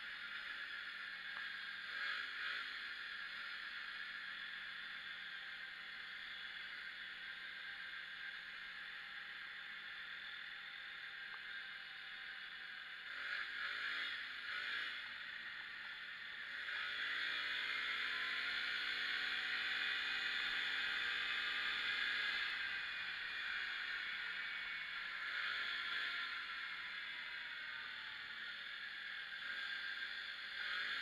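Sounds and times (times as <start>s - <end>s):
quad engine revving: 12.9s - 27.3s, 28.2s - 31.0s.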